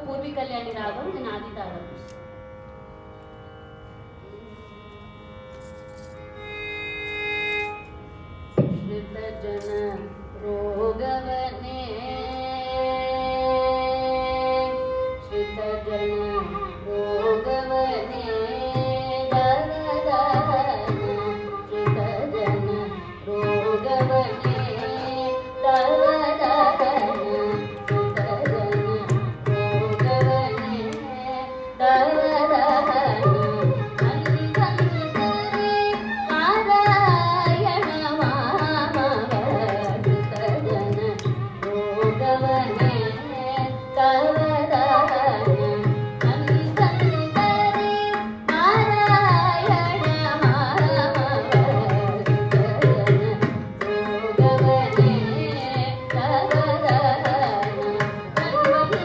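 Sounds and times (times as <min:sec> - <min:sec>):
woman singing: 0:08.8 - 0:59.0.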